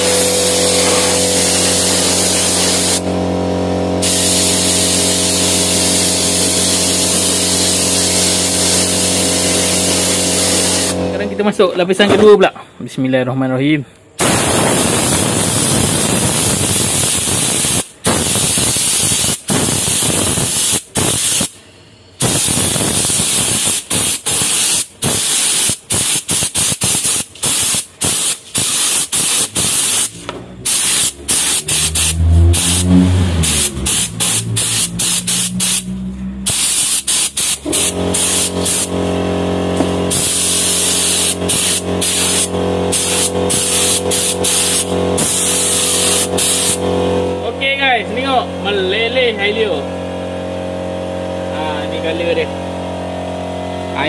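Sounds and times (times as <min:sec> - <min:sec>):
spray gun air hiss: 0:00.0 - 0:03.2, 0:04.0 - 0:11.0, 0:14.2 - 0:21.6, 0:22.2 - 0:39.0, 0:39.8 - 0:46.9.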